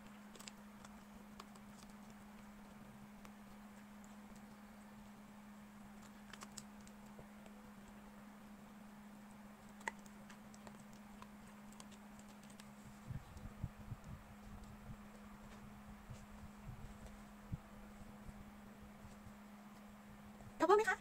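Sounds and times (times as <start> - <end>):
puppy chewing clicks: 0.0 - 4.6, 5.9 - 8.0, 9.6 - 14.8
steady low hum: 0.0 - 21.0.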